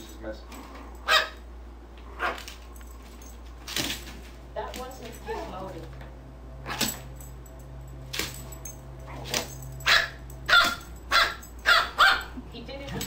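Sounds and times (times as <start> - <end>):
dog barking: 1.0 - 1.4, 2.1 - 2.5, 9.1 - 12.4.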